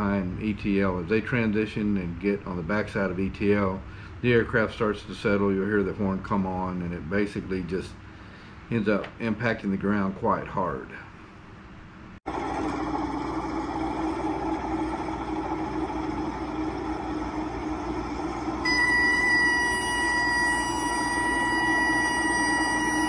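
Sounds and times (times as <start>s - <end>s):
high-pitched warning horn: 18.6s - 23.0s.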